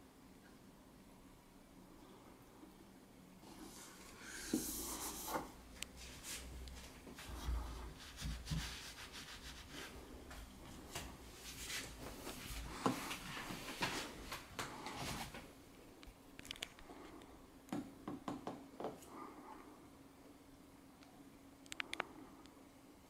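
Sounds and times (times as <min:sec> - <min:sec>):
scattered clicks: 0:21.0 - 0:22.6.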